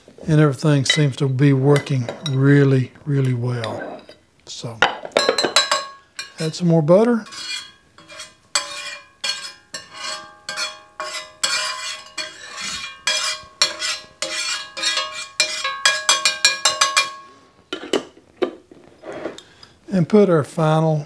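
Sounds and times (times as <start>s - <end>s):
metal spatula scraping a pan: 3.6s - 4.2s, 5.6s - 6.6s, 7.2s - 18.1s, 19.0s - 19.4s.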